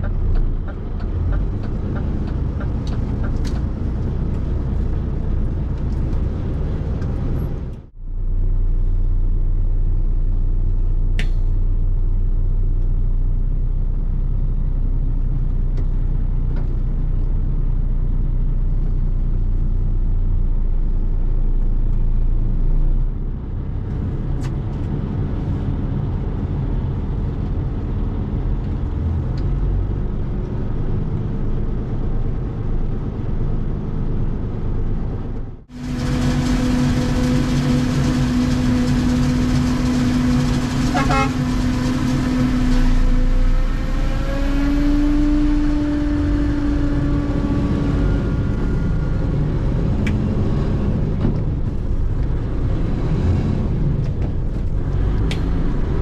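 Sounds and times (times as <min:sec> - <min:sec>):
truck diesel engine drone: 0:00.0 - 0:56.0
small click: 0:11.2 - 0:11.5.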